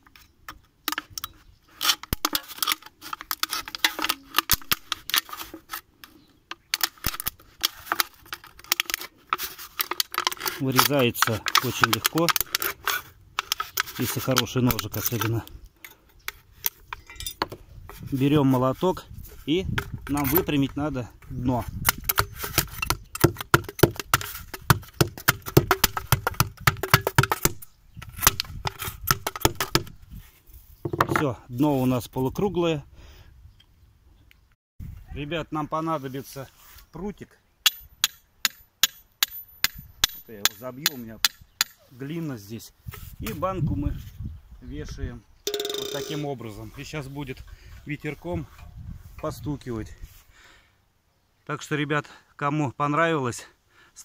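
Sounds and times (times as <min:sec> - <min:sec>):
knife cutting aluminium can: 0:00.9 - 0:05.8, 0:06.6 - 0:15.4, 0:21.8 - 0:29.9
hammer knocking on metal can: 0:23.2 - 0:27.5.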